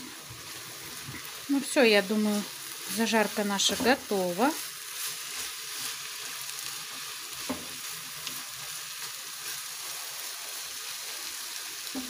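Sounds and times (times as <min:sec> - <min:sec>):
vegetables sizzling in a frying pan: 0:00.0 - 0:12.0
wooden spatula stirring: 0:02.2 - 0:11.2.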